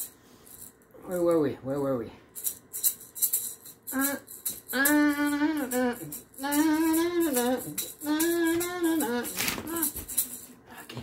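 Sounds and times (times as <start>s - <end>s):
maraca rattling: 2.4s - 10.8s
person singing long held notes: 4.0s - 10.0s.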